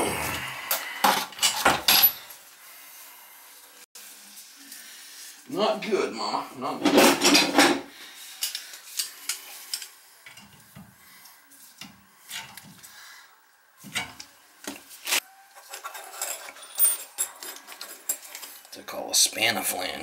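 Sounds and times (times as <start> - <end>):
metal tool scraping: 15.0 - 18.6.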